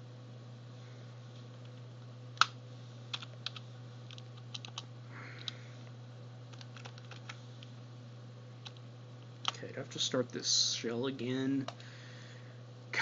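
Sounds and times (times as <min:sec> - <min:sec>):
keyboard typing: 0:03.1 - 0:04.8, 0:06.5 - 0:07.4.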